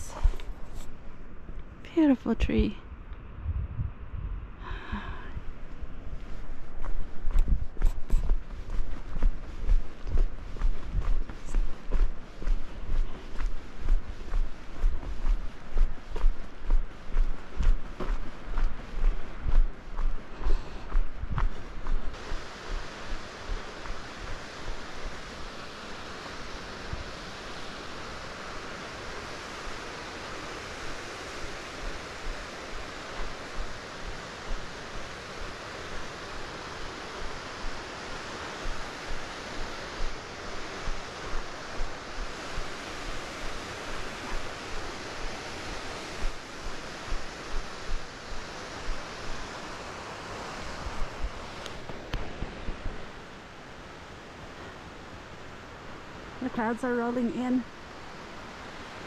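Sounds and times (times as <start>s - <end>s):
wind rushing: 2.8s - 25.8s
wind buffeting microphone: 2.9s - 25.8s.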